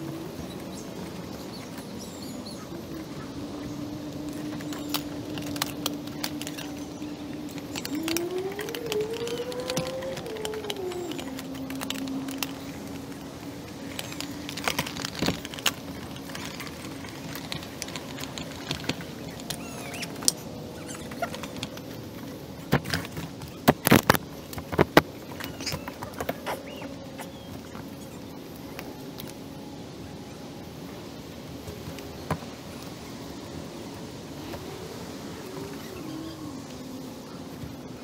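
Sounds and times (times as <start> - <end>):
nylon pouches rustling: 3.4 - 28.0
buckles clicking and snapping: 4.2 - 21.9.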